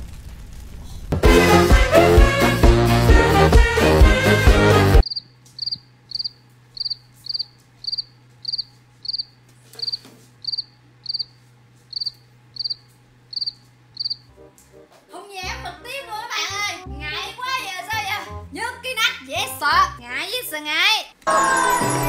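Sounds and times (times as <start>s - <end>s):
cricket chirping: 5.0s - 14.3s
faint low hum: 5.0s - 14.9s.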